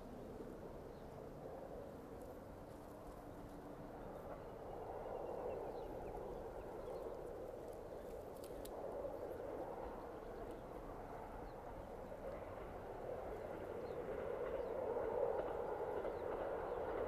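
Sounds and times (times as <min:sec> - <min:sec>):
distant railcar engine drone: 0:00.0 - 0:17.0
faint clicks: 0:07.6 - 0:08.8.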